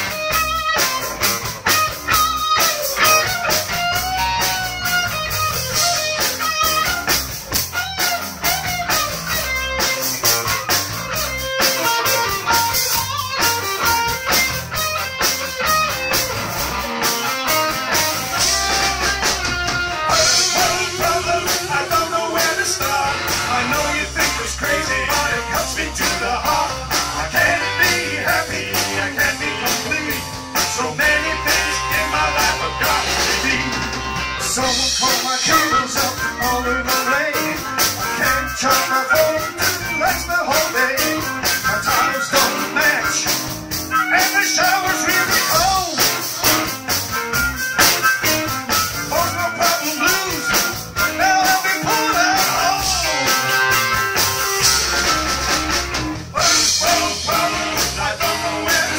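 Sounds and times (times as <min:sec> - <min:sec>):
bass guitar: 0:00.0 - 0:58.9
drum kit beat: 0:00.0 - 0:58.9
electric guitar: 0:00.0 - 0:58.9
harmonica playing: 0:00.1 - 0:28.4.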